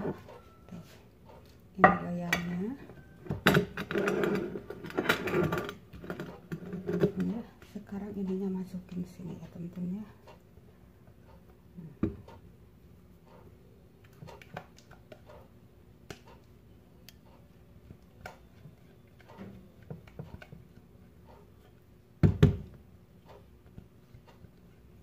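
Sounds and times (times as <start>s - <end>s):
spatula scraping and tapping bowl: 17.4s - 21.8s.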